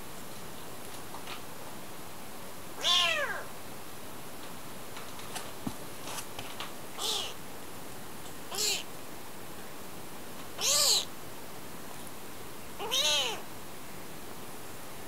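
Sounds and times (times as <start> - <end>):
kitten meowing: 2.8 - 3.5, 7.0 - 7.4, 8.5 - 8.9, 10.6 - 11.1, 12.8 - 13.4.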